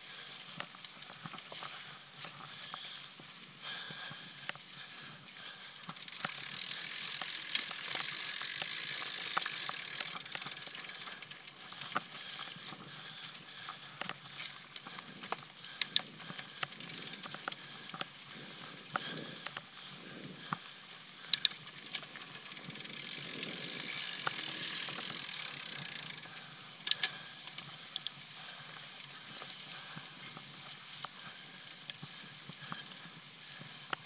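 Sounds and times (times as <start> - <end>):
bike tyres on dirt: 0.0 - 34.0
bike chain rattling and clicking: 3.7 - 34.0.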